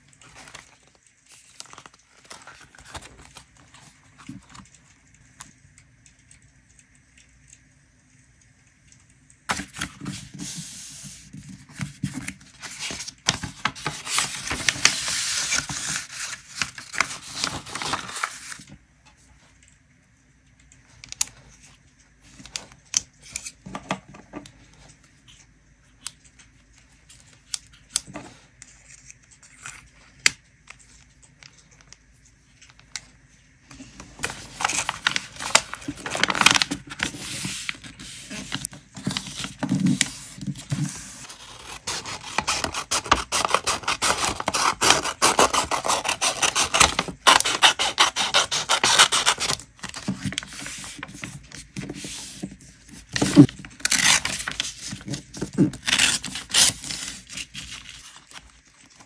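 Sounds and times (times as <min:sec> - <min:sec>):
paper rustling and crinkling: 0:00.0 - 0:05.0, 0:09.5 - 0:18.8, 0:33.7 - 0:59.0.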